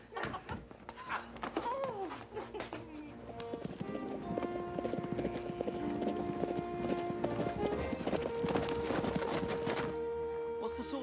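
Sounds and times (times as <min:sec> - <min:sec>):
background music held notes: 0:00.0 - 0:11.0
horses galloping hoofbeats: 0:01.4 - 0:10.0.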